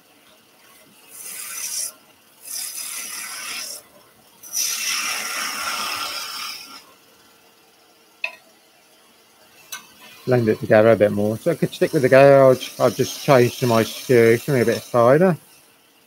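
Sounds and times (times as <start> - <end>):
gouge cutting wood on a lathe: 1.0 - 6.9, 10.0 - 15.6.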